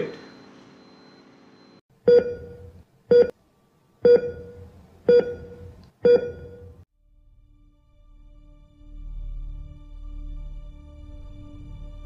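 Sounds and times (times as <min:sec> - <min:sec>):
electronic beeps: 0:00.0 - 0:03.3, 0:04.1 - 0:06.8.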